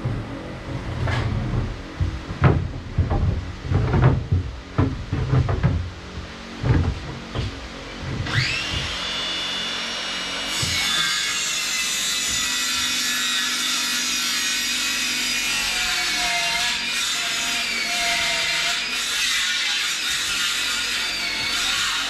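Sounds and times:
power tool whining: 6.1 - 16.2.

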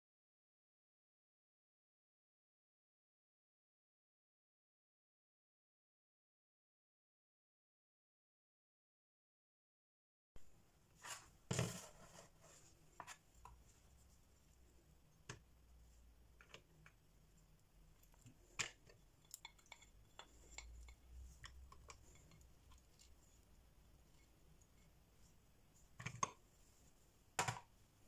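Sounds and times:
spatula scraping and tapping: 11.0 - 13.8, 18.0 - 23.5.

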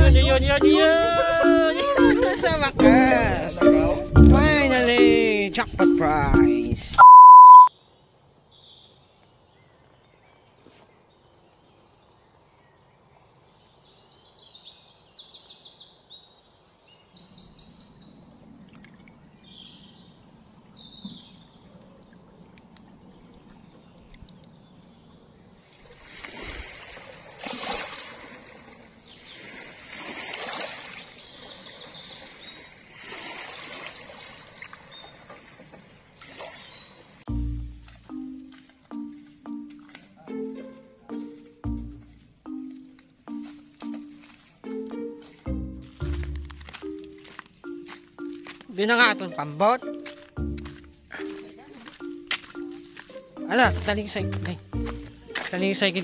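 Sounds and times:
test tone beep: 7.0 - 7.7
birds chirping: 7.0 - 26.1, 26.9 - 56.0
waves lapping on rocks: 25.9 - 37.1.

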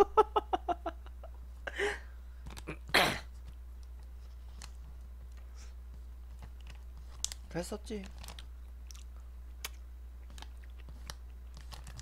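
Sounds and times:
man laughing: 0.0 - 2.0.

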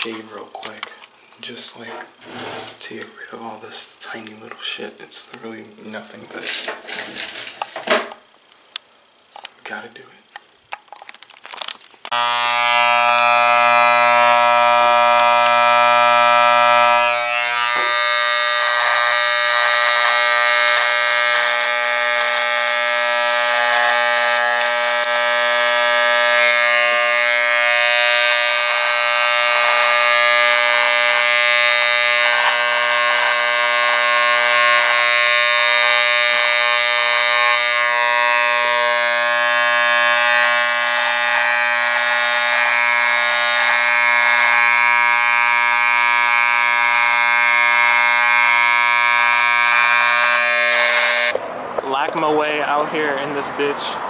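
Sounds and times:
electric hair trimmer buzzing: 12.1 - 51.4.

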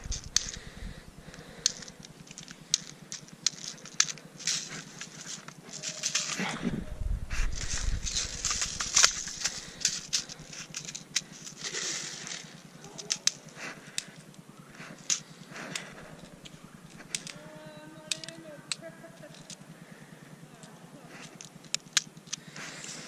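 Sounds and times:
microphone handling noise: 0.0 - 1.2, 6.4 - 9.8
sharp clicks: 0.0 - 6.6, 7.5 - 19.7, 20.6 - 23.0
tall grass rustling: 0.0 - 17.5.

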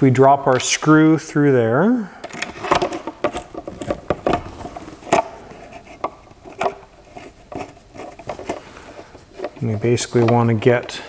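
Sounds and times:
screwdriver clicking and scraping: 2.2 - 9.7.

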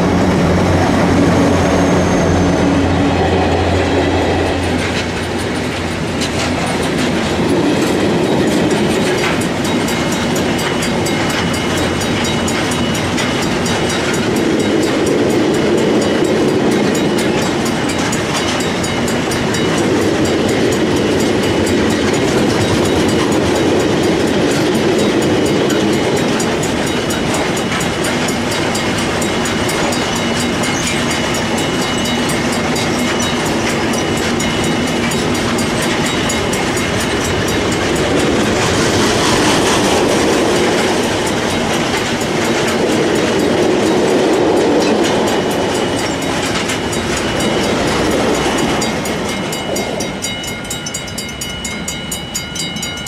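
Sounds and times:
freight train rolling past: 0.0 - 53.0
wheels clicking over rail joints: 2.5 - 53.0
level crossing bell ringing: 39.9 - 53.0.

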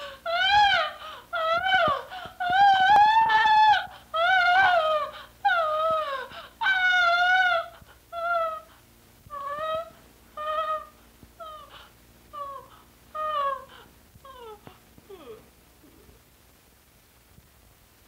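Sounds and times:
woman wailing and sobbing: 0.0 - 8.7, 9.3 - 11.7, 12.4 - 13.7.

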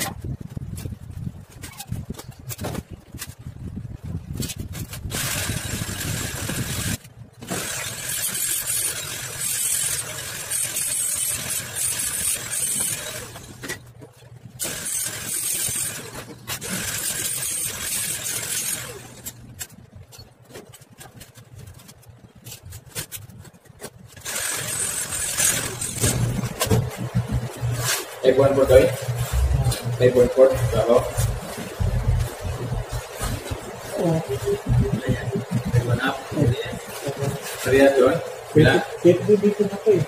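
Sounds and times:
harsh hissing metal grinding: 24.2 - 26.6.

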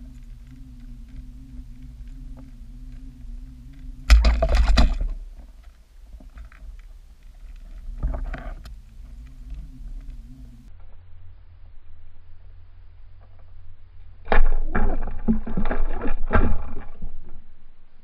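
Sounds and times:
underwater low hum: 0.0 - 18.0
underwater rushing thump: 4.1 - 5.5.

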